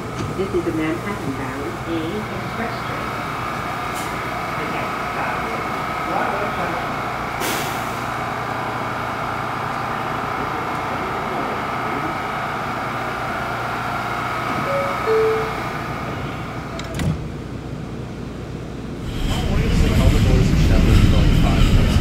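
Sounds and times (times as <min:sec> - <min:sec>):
subway train hum and whine: 0:00.0 - 0:22.0
two-note falling tone: 0:14.7 - 0:15.8.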